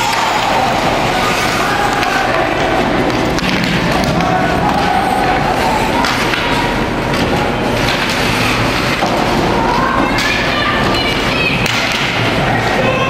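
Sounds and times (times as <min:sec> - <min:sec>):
spectators calling out: 0:00.0 - 0:07.6
thumps from hockey game: 0:00.0 - 0:10.5
arena crowd din: 0:00.0 - 0:13.0.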